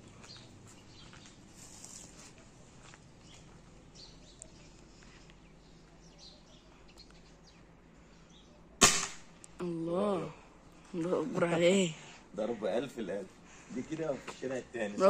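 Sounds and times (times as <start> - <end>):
faint bird chirps: 3.2 - 8.8
air rifle shot: 8.8 - 9.4.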